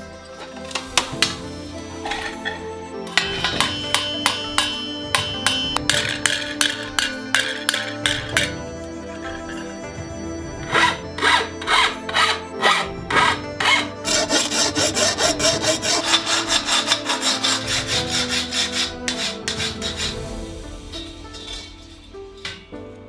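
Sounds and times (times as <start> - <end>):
soft music: 0.0 - 23.0
tool scraping copper sheet: 10.6 - 22.6.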